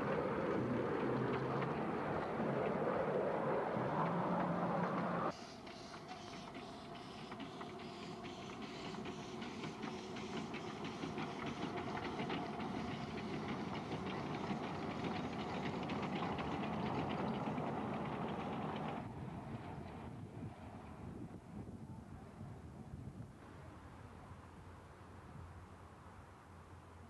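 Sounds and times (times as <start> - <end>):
steam locomotive chuffing: 0.0 - 20.0.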